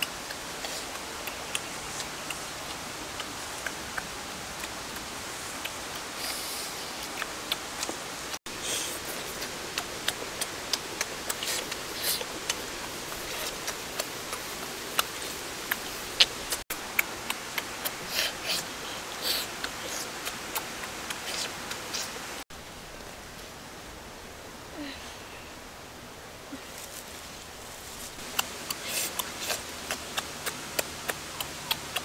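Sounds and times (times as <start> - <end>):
steady hiss: 0.0 - 32.0
person chewing with wet smacking: 8.9 - 22.1, 28.2 - 32.0.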